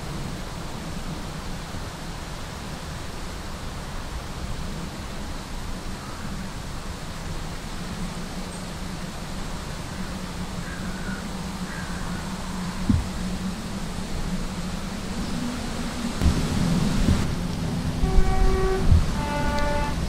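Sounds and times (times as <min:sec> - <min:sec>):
wind hiss: 0:00.0 - 0:20.0
distant diesel railcar droning: 0:06.5 - 0:20.0.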